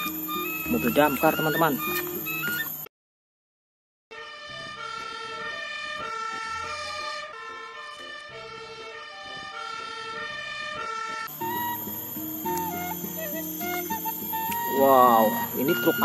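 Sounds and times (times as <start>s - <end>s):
fire engine siren: 4.1s - 16.0s.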